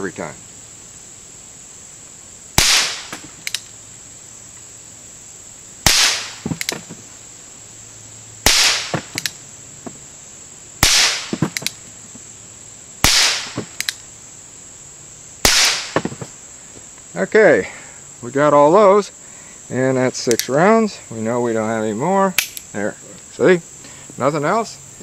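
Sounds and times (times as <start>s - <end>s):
revolver gunshots: 2.6s - 3.4s, 5.8s - 6.7s, 8.4s - 9.3s, 10.8s - 11.6s, 13.0s - 13.8s, 15.4s - 16.1s
light mechanical clicks: 3.4s - 3.7s.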